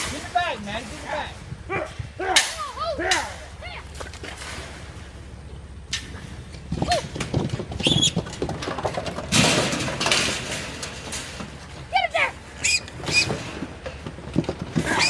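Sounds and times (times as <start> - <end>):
young hogs squealing: 12.5 - 13.4.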